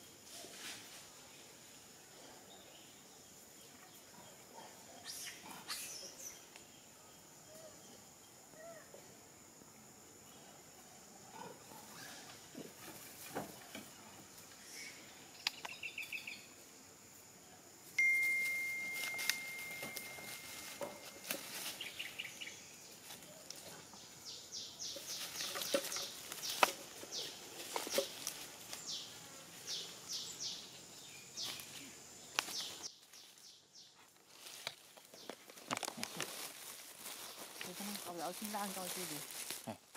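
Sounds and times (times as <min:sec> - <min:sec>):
high insect drone: 0:05.0 - 0:33.6
birds chirping: 0:18.0 - 0:34.0
crackles of dry leaf litter: 0:18.1 - 0:23.8, 0:24.8 - 0:29.0, 0:31.4 - 0:39.9.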